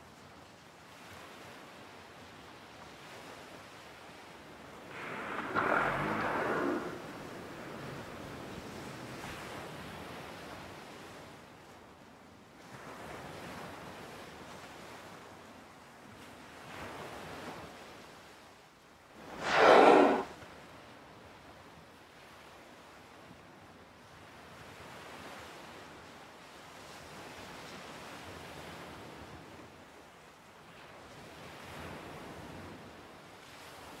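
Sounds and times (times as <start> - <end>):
waves: 0.0 - 18.5, 19.2 - 20.3, 20.9 - 34.0
wind: 0.0 - 34.0
sea waves: 4.8 - 9.5, 19.3 - 20.3.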